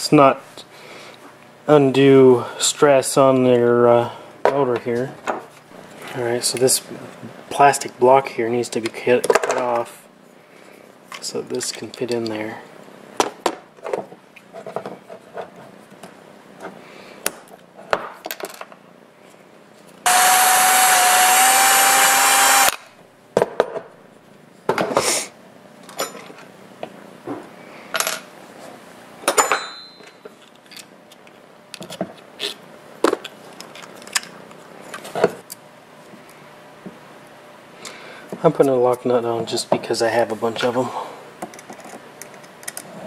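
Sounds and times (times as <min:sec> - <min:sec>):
handheld power tool whining: 0:20.1 - 0:22.9.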